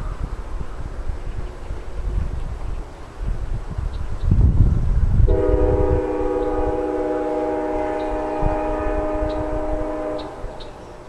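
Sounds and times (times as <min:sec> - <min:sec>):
locomotive air horn chord: 0:05.3 - 0:10.8.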